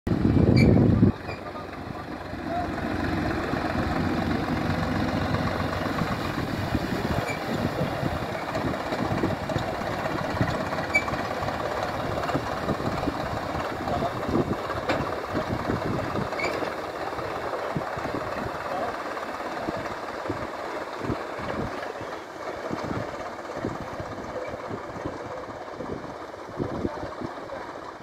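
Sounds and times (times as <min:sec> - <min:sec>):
tractor diesel engine running: 0:00.1 - 0:28.0.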